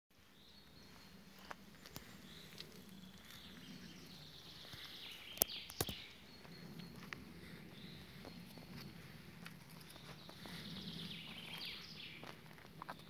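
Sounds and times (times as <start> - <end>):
footsteps snapping twigs: 1.8 - 3.4, 4.6 - 6.0.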